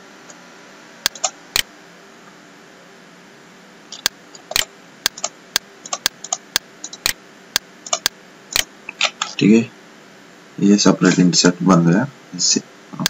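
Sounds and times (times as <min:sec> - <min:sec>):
low steady hiss: 0:00.0 - 0:13.0
computer mouse clicking: 0:01.0 - 0:01.7, 0:03.9 - 0:07.2, 0:07.8 - 0:09.4.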